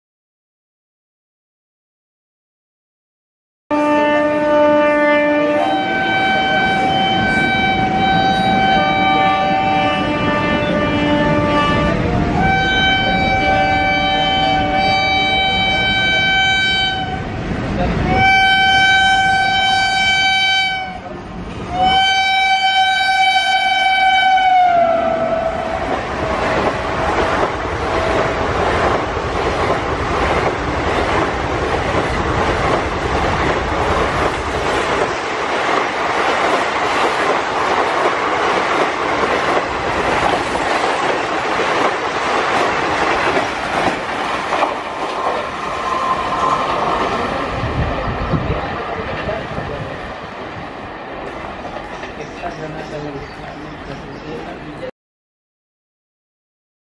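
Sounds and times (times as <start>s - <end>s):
locomotive horn blasts: 3.7s - 17.3s, 18.1s - 21.1s, 21.7s - 27.2s
train wheels clattering on rails: 25.8s - 48.0s, 51.2s - 54.0s.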